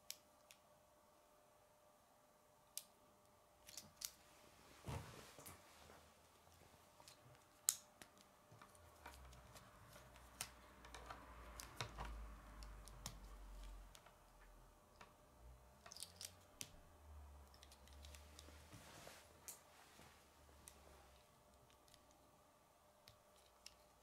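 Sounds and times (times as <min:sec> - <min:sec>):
plastic pieces clicking: 0:15.8 - 0:16.4.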